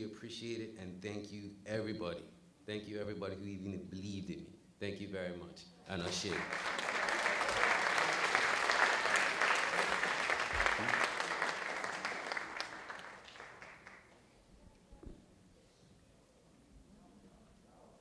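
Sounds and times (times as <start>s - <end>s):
audience applauding: 6.1s - 14.2s.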